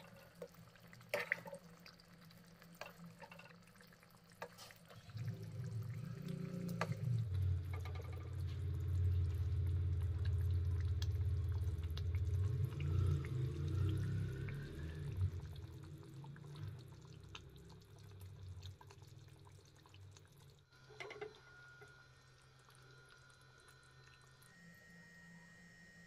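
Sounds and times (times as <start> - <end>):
ladle stirring in pan: 0.0 - 1.9, 2.6 - 5.3
gravy squelching and dripping: 0.0 - 20.8
faint steady hum: 0.0 - 26.0
low rumble: 5.3 - 17.2.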